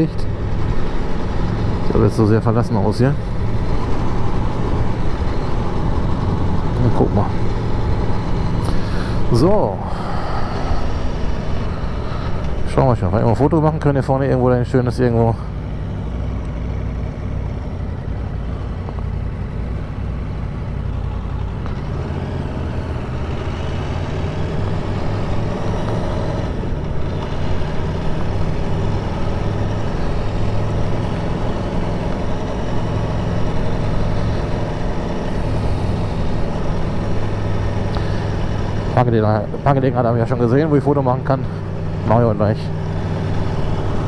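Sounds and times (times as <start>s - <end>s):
motorcycle engine running at low revs: 3.2s - 8.8s, 15.6s - 44.0s.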